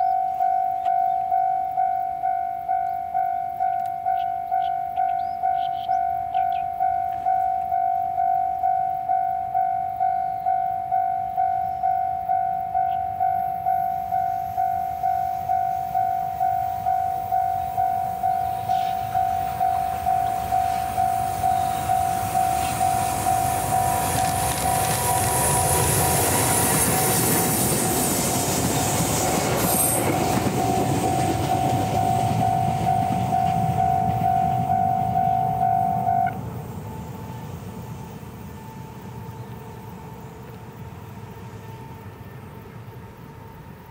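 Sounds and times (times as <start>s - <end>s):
locomotive rumble and wheel noise: 0.0s - 43.9s
railroad crossing alarm ringing: 0.0s - 43.9s.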